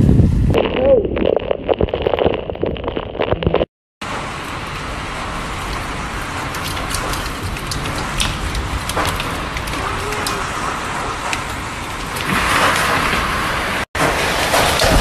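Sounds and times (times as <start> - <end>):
heavy rain hissing: 4.0 - 15.0
hailstones clattering: 4.2 - 13.4.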